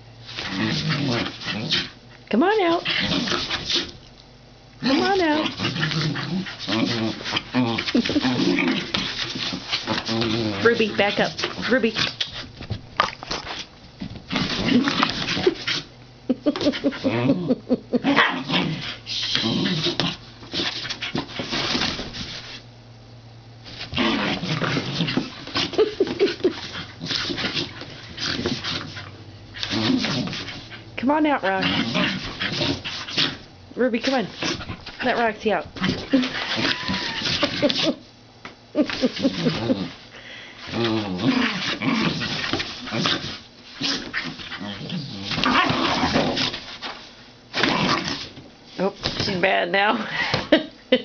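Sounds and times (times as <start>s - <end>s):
dogs whining and grumbling: 0.4s - 3.9s, 4.8s - 12.4s, 14.3s - 21.9s, 34.2s - 38.1s, 38.8s - 46.8s
dogs yipping: 36.1s - 37.7s.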